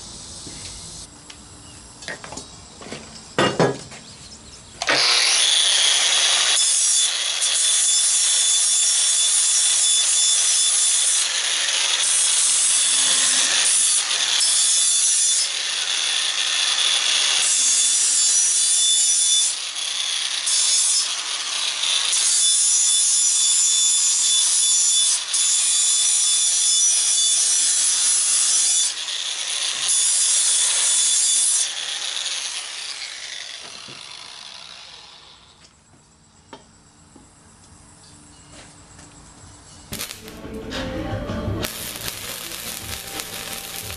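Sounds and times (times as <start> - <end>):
angle grinder grinding steel: 4.8 - 35.6, 39.9 - 43.9.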